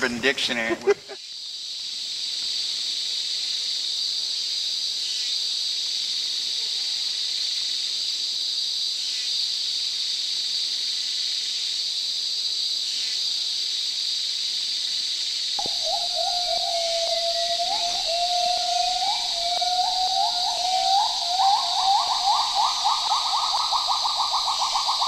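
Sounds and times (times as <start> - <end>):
insect chorus drone: 0.0 - 25.0
whistle-like tone: 15.6 - 25.0.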